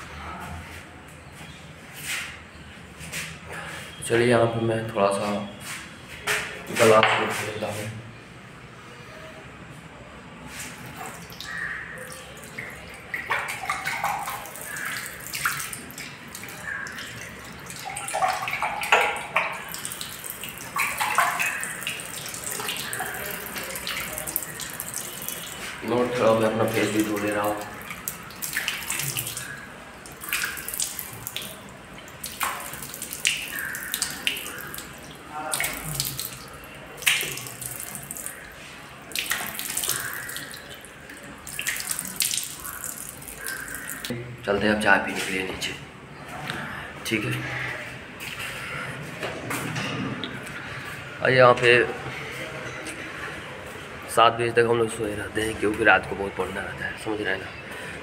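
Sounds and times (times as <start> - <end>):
hands splashing in water: 10.6 - 44.1
tap water running into washbasin: 11.0 - 44.1.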